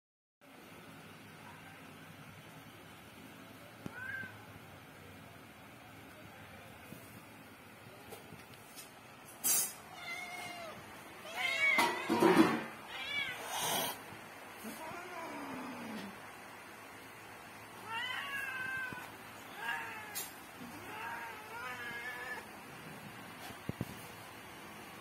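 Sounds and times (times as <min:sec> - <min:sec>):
cats meowing: 0:03.8 - 0:04.6, 0:09.6 - 0:14.0, 0:14.6 - 0:16.2, 0:17.7 - 0:22.6.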